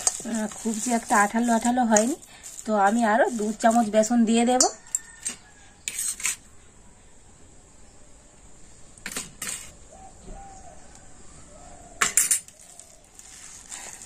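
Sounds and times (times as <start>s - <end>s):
metal spoon clinking on steel bowl: 4.5s - 6.4s.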